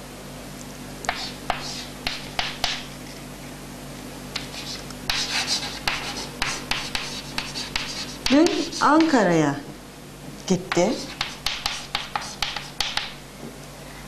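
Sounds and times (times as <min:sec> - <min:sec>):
chalk writing on chalkboard: 0:01.1 - 0:02.9, 0:04.4 - 0:09.2, 0:10.7 - 0:13.2.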